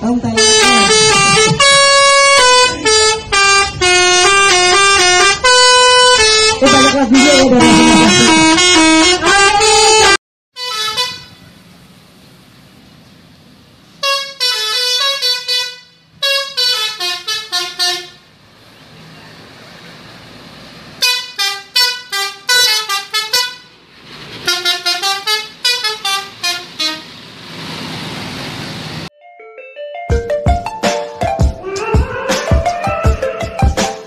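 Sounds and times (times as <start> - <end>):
musical horn playing tune: 0.4 - 11.4, 14.0 - 18.2, 21.0 - 23.7, 24.4 - 27.1.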